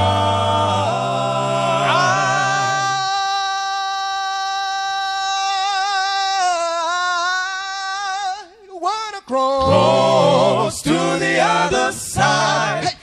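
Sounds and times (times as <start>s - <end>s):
man singing a cappella: 1.6s - 13.0s.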